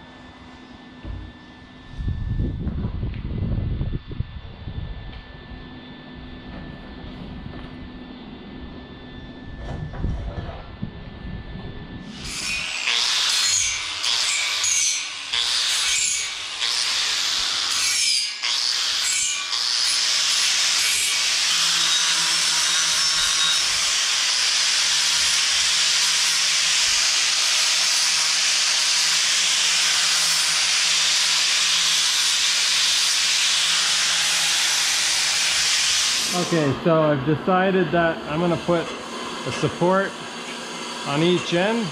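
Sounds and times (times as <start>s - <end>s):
angle grinder grinding steel: 12.0s - 41.9s.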